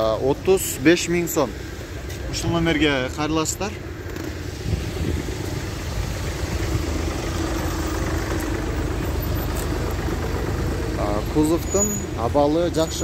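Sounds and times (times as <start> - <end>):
car engine idling: 2.8 - 13.0.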